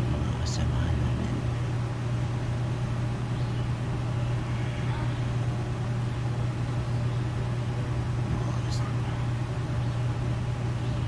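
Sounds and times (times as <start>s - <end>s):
low motor hum: 0.0s - 11.0s.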